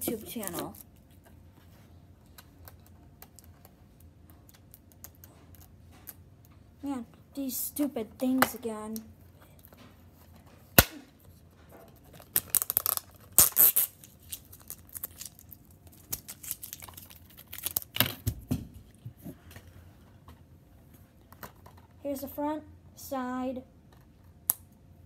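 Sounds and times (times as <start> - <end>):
plastic wrapping crackling and tearing: 12.1 - 18.2.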